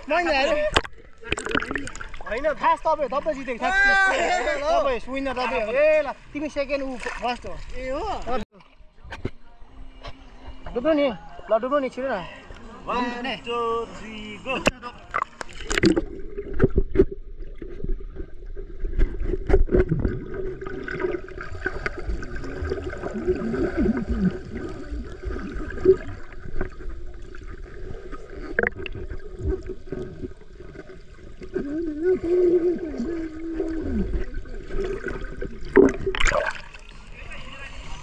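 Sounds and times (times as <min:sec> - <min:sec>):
underwater gurgling and bubbling: 0:15.1 - 0:37.2.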